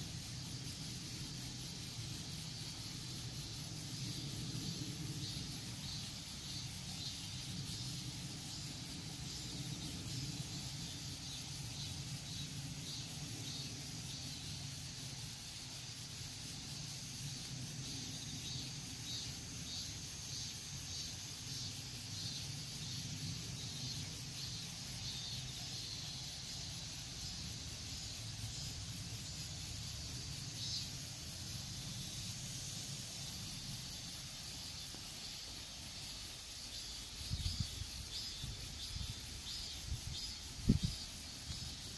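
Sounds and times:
insects trilling and chirping: 0.0s - 41.9s.

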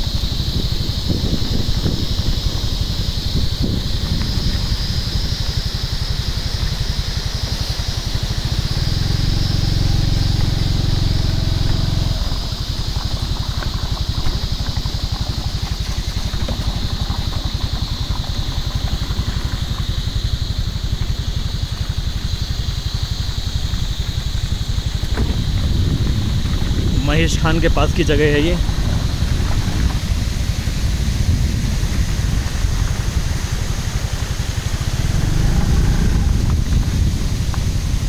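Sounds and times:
small engine running: 0.0s - 38.0s
louder engine hum: 1.8s - 14.9s, 24.0s - 38.0s
high-pitched drone: 34.7s - 37.1s.

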